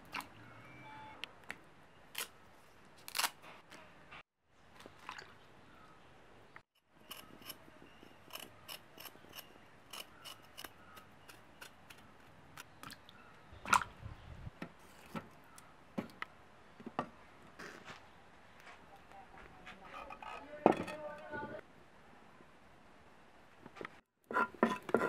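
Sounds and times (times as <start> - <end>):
knife scraping potato skin: 7.0 - 12.8.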